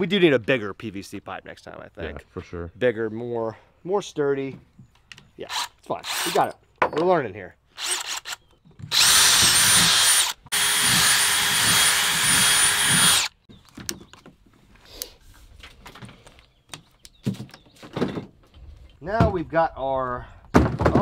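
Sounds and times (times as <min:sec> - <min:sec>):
cordless drill boring through pipe: 0:05.5 - 0:06.5, 0:07.8 - 0:13.4.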